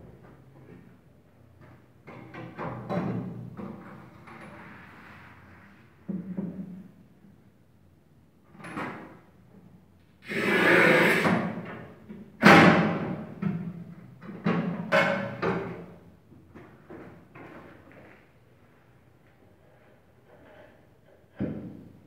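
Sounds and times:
tile cutter scraping tile: 10.2s - 11.5s.

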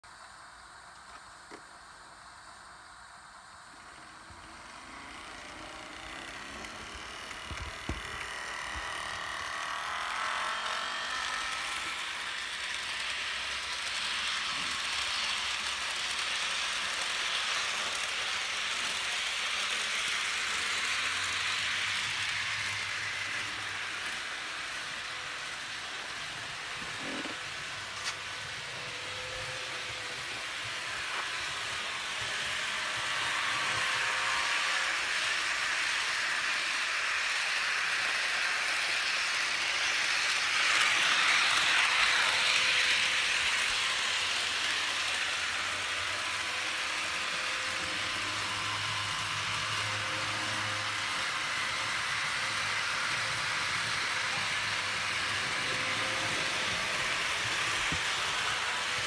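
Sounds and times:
faint motor hum: 0.1s - 59.0s
model train wheels rattling: 3.8s - 59.0s.

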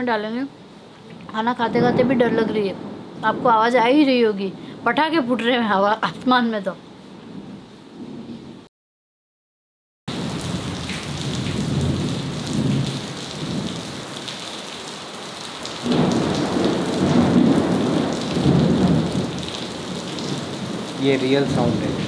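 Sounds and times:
heavy rain pouring: 0.0s - 6.7s, 10.1s - 22.0s
thunder rumbling: 1.3s - 5.6s, 10.1s - 14.0s, 15.8s - 22.0s.

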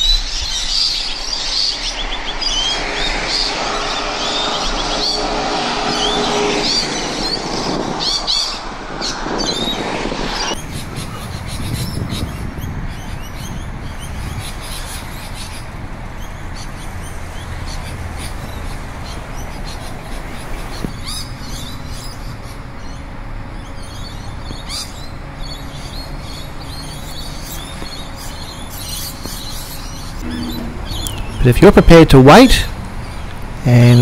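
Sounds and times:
steady low hum: 0.0s - 34.0s
lorikeets calling: 10.6s - 34.0s.

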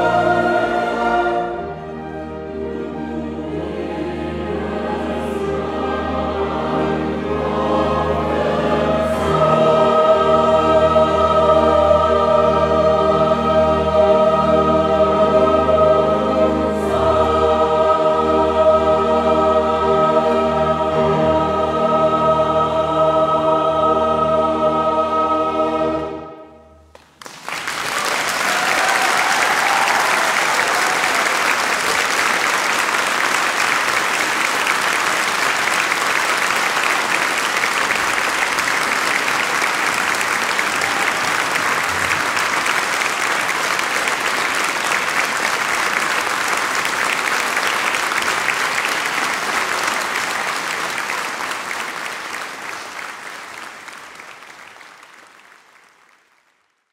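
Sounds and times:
choir with strings and piano: 0.0s - 26.8s, 28.3s - 52.0s
audience applause: 26.9s - 56.9s.

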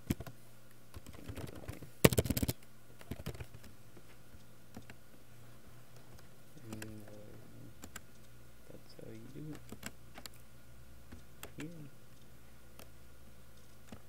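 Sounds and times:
computer keyboard typing: 0.0s - 3.7s, 4.7s - 5.0s, 6.1s - 8.3s, 9.1s - 10.4s, 11.1s - 11.9s.

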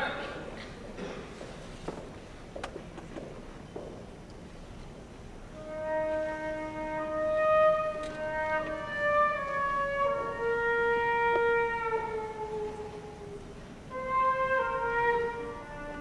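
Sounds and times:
flutes and woodwinds: 5.6s - 16.0s
wind band playing chords: 5.6s - 16.0s.

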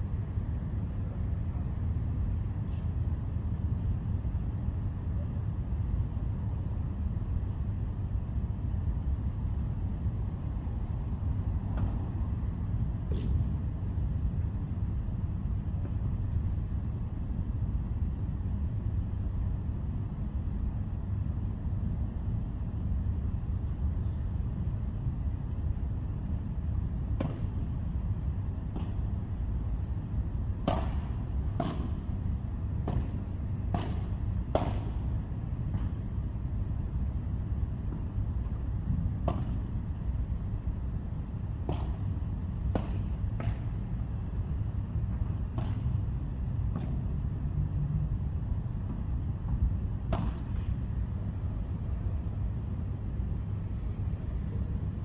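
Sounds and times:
padel ball pops off rackets: 30.6s - 32.0s.

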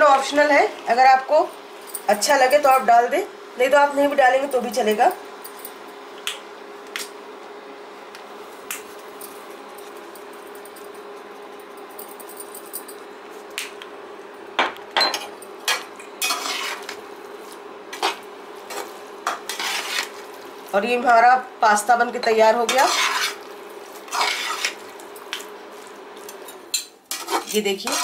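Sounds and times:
metal spoon scraping a pot: 16.2s - 17.0s, 18.0s - 20.2s, 22.7s - 23.5s, 24.1s - 24.8s, 27.1s - 28.0s.

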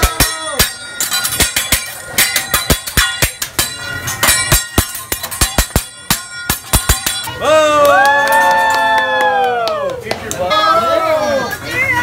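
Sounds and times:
spatula clanging on steel griddle: 0.0s - 7.4s.

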